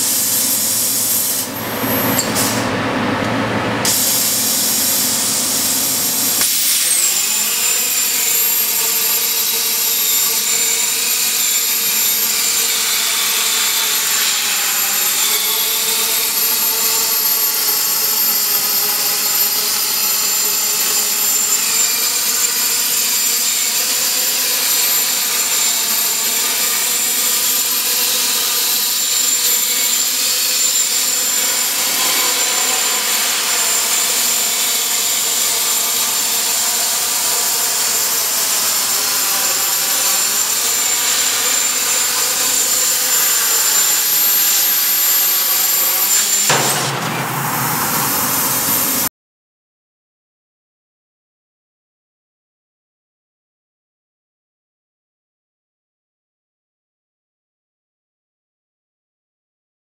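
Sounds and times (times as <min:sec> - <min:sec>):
plasma torch cutting steel: 0:00.0 - 0:02.7, 0:03.8 - 0:49.1
high whine: 0:46.5 - 0:49.1.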